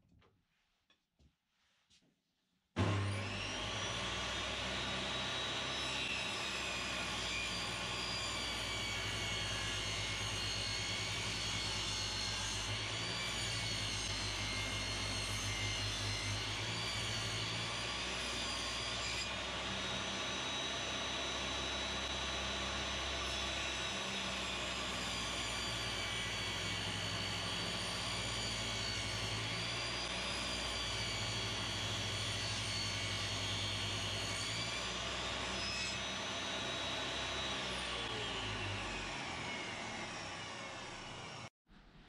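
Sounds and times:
table saw whine cutting wood: 2.8s - 41.5s.

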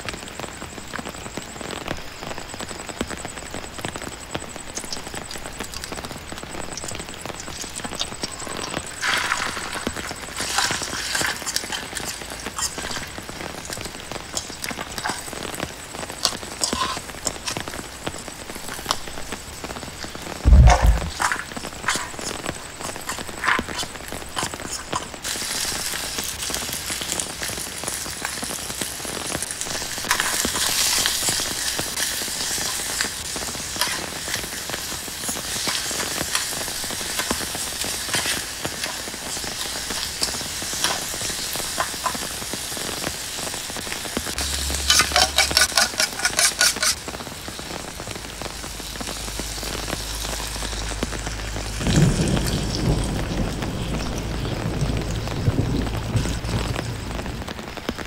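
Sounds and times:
food sizzling in a frying pan: 0.0s - 58.0s
liquid poured into hot pan: 7.4s - 13.1s
metal spatula scraping a pan: 8.4s - 13.0s, 16.6s - 17.1s, 44.4s - 47.0s.

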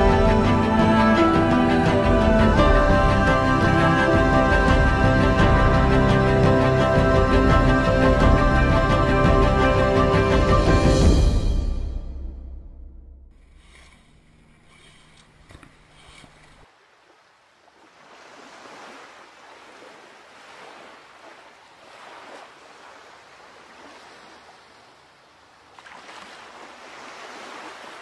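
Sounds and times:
rushing water waves: 15.9s - 28.0s.

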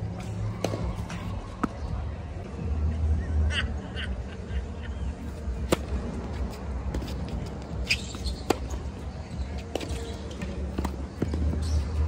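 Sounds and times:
tennis racket hitting ball: 0.2s - 1.8s
tennis ball bouncing: 0.2s - 2.0s, 5.6s - 12.0s.

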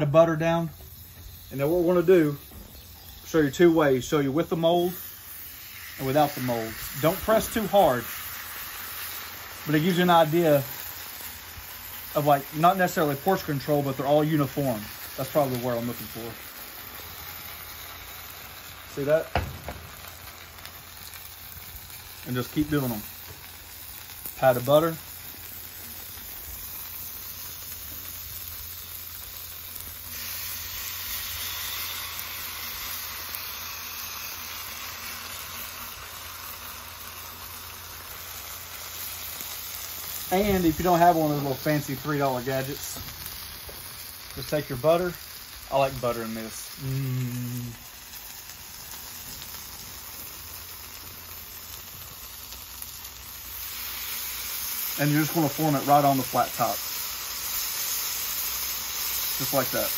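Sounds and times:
potatoes sizzling on griddle: 0.0s - 59.9s.

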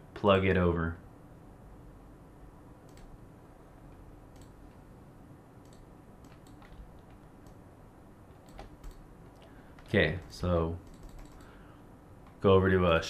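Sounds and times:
low background hum: 0.0s - 13.0s
computer mouse clicks: 2.8s - 3.2s, 3.9s - 4.8s, 5.6s - 7.6s, 8.3s - 11.6s.

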